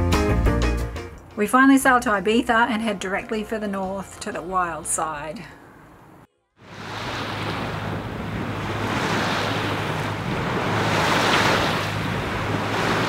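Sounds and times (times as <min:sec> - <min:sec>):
wind and water rushing: 0:06.6 - 0:13.0
wind buffeting microphone: 0:06.7 - 0:13.0.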